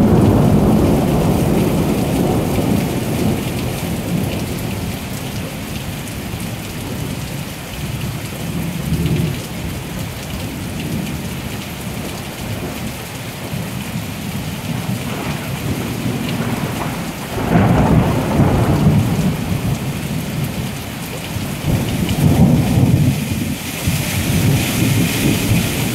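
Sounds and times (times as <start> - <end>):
thunder rumbling: 0.0 - 7.2, 13.5 - 25.9
rain falling: 0.0 - 25.9.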